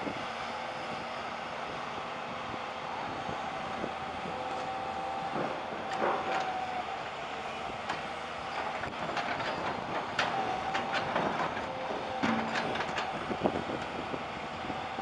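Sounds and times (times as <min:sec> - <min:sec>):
excavator engine and hydraulics: 0:00.0 - 0:15.0
steel tracks clanking and squealing: 0:05.3 - 0:07.1, 0:07.9 - 0:13.8.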